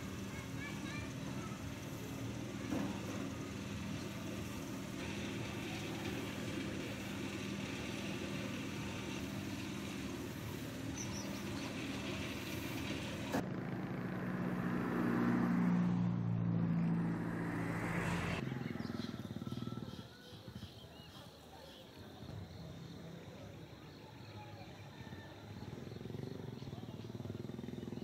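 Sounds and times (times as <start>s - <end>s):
engine humming: 0.0s - 19.9s.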